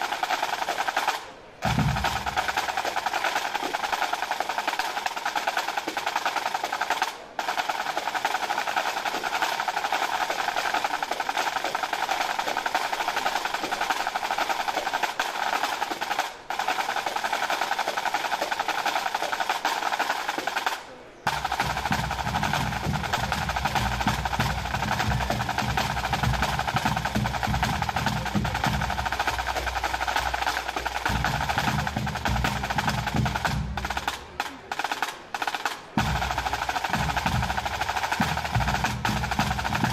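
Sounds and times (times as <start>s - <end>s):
snare drums rolling: 0.0s - 39.9s
bass and tenor drums: 1.6s - 2.8s, 21.3s - 39.9s.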